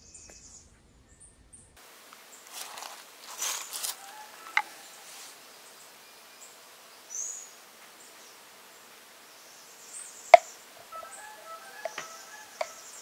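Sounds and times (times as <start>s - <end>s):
high bird chirp: 9.3s - 13.0s.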